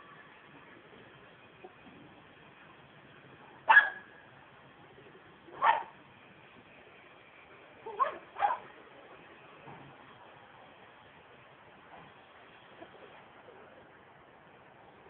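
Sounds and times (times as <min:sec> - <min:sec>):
small dog barking: 0:03.6 - 0:04.2, 0:05.5 - 0:06.0, 0:07.9 - 0:08.7.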